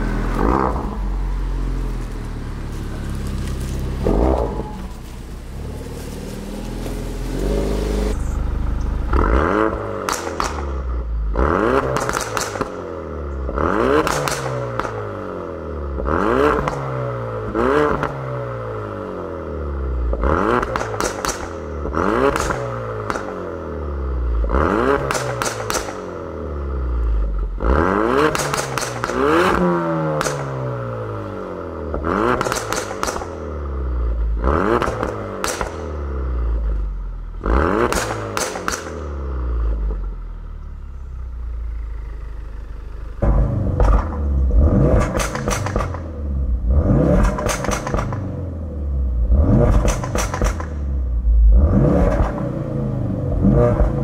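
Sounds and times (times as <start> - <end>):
exhaust pops and crackles: 0.0 - 15.2, 16.0 - 16.9, 20.1 - 23.6, 24.4 - 26.3, 28.1 - 30.8, 31.9 - 40.8, 41.4 - 48.4, 49.3 - 51.0, 52.0 - 52.5
car engine idling and revving: 0.0 - 54.0.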